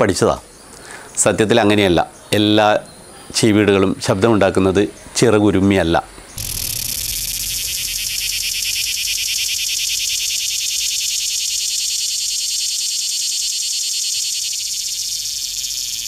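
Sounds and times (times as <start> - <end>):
cicada buzzing: 5.8 - 16.0.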